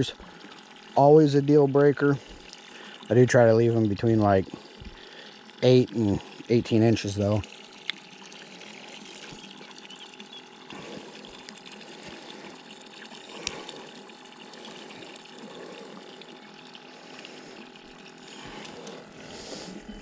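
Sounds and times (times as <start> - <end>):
faint pump hum: 0.0 - 20.0.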